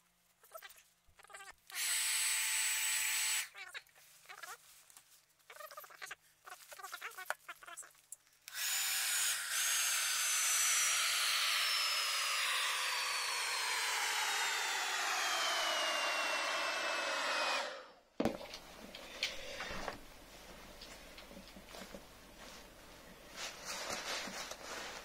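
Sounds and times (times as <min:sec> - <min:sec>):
hair dryer whining: 0:08.5 - 0:20.0.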